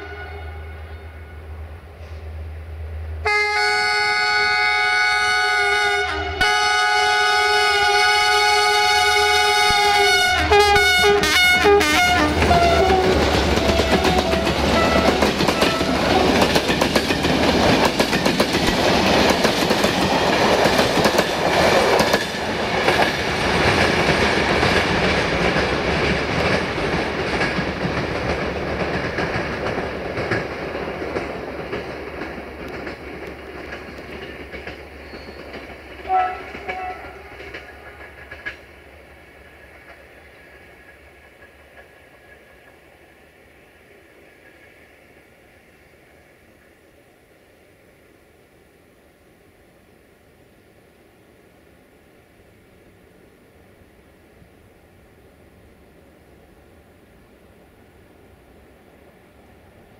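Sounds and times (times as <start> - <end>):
locomotive horn chord: 0.0 - 1.4, 3.2 - 16.0, 36.1 - 37.3
train wheels clattering on rails: 12.0 - 43.2.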